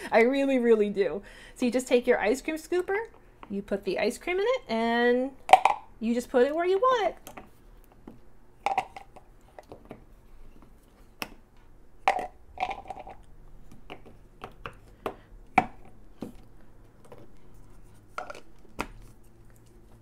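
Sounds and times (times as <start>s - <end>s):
plastic toys knocking and clicking: 5.5s - 5.8s, 7.2s - 10.0s, 12.1s - 16.4s.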